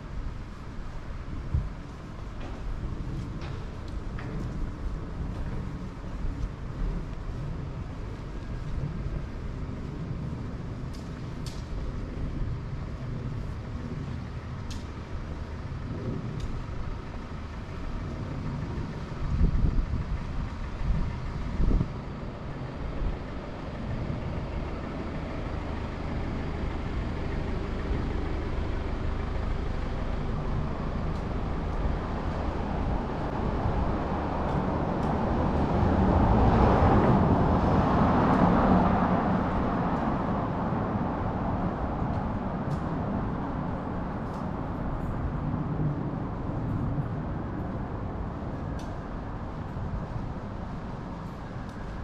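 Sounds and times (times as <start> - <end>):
city street traffic: 0.0 - 52.0
vehicle passing close by: 24.3 - 44.8.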